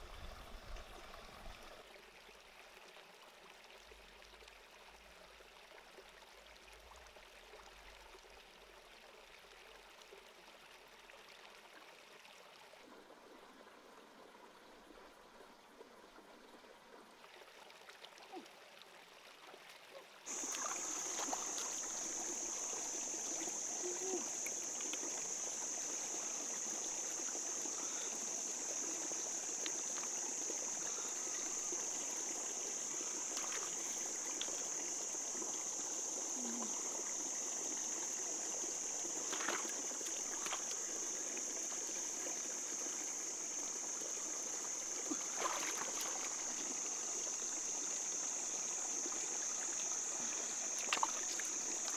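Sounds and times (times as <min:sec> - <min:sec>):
stream trickling over rocks: 0:00.0 - 0:51.9
splashes and knocks in water: 0:20.3 - 0:21.8, 0:39.2 - 0:40.8, 0:45.0 - 0:46.4, 0:50.8 - 0:51.9.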